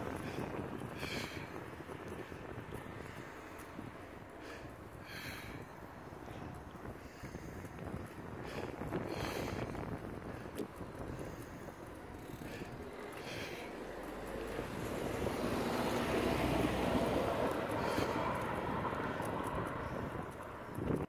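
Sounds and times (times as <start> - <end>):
tyre and road rumble: 0.0 - 21.0
wind buffeting microphone: 0.0 - 21.0.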